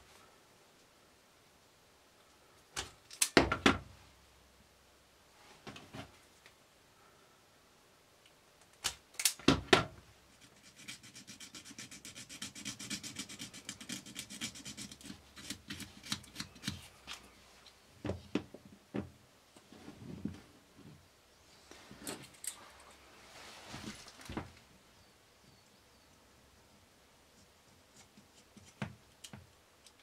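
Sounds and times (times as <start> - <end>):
fingers rubbing copper strands: 10.3 - 17.3.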